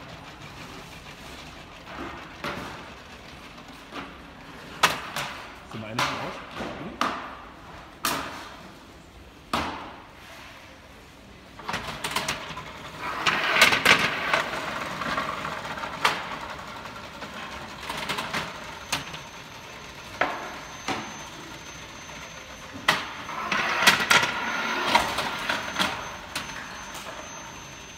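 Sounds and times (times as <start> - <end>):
trays rattling over rollers: 11.6 - 27.9.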